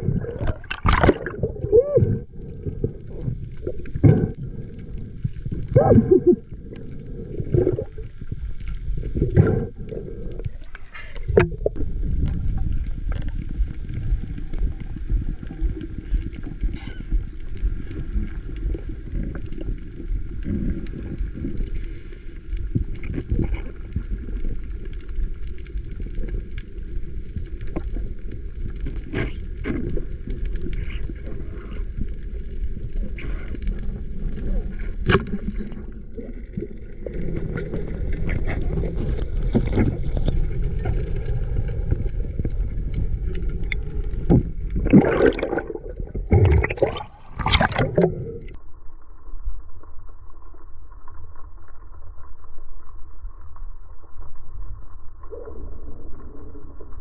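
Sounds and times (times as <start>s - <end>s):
underwater rumble of moving water: 0.0s - 57.0s.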